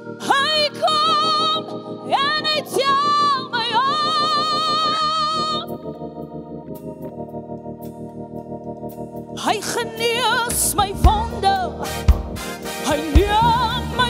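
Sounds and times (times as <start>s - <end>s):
gospel keyboard chords: 0.0s - 14.0s
woman singing with vibrato: 0.1s - 5.7s, 9.4s - 12.0s, 12.8s - 14.0s.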